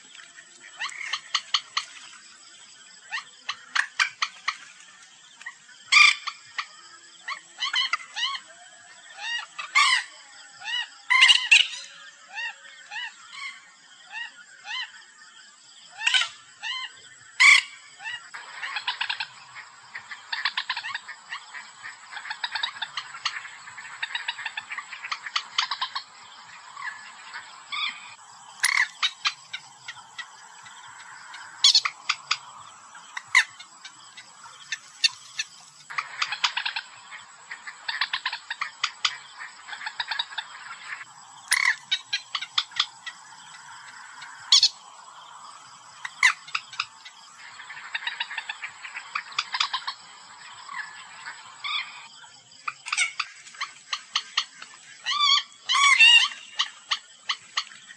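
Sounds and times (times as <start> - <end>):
moorhen calling: 15.9 - 57.8.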